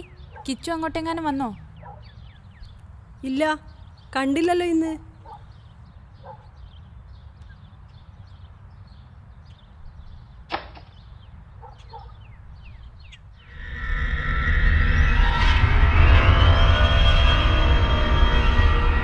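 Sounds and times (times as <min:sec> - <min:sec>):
small birds chirping: 0:00.0 - 0:13.6
eerie background music: 0:13.5 - 0:19.0.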